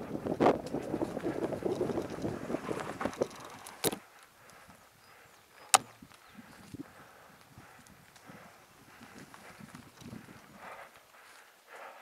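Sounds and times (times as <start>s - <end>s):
bicycle frame rattling: 0.2s - 4.0s, 7.6s - 10.8s
tyres crackling over dry leaves: 0.7s - 4.5s.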